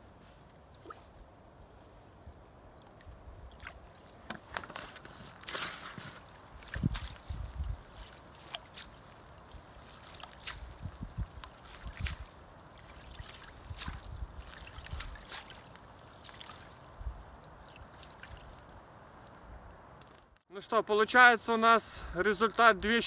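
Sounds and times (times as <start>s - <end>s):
water dripping off net: 2.8s - 4.6s, 5.4s - 19.4s.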